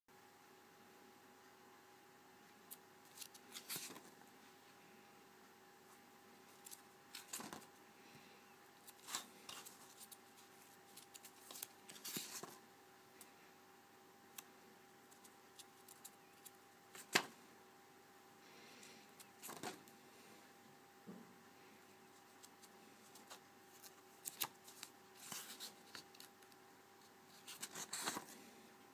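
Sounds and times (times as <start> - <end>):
faint steady hum: 0.1 - 28.9
paper pages rustling: 3.1 - 4.2, 6.5 - 7.7, 8.8 - 12.6, 19.2 - 19.9, 22.3 - 26.5, 27.3 - 28.4.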